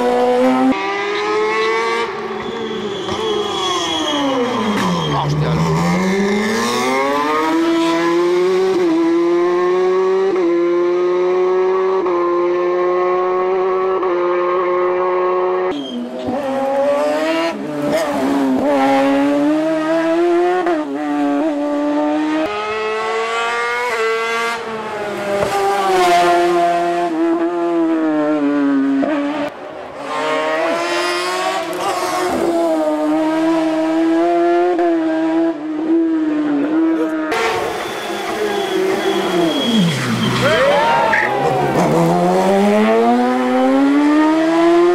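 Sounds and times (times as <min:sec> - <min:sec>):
race car engine revving: 0:00.0 - 0:44.9
tyres squealing: 0:02.3 - 0:06.0.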